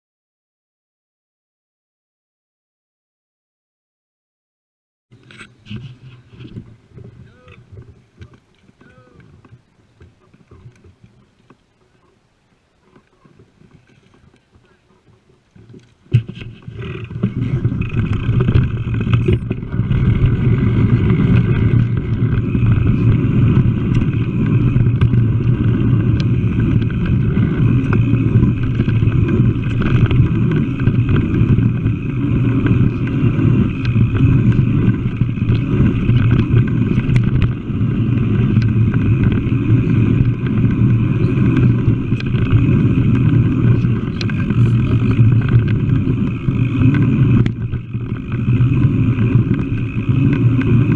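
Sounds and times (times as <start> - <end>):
bike trail vibration rumble: 5.1 - 50.9
wind buffeting: 16.1 - 50.9.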